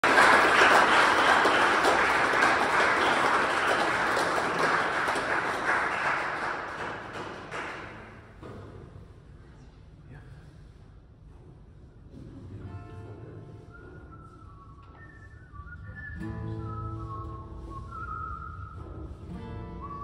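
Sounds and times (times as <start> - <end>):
audience applauding: 0.0 - 8.3.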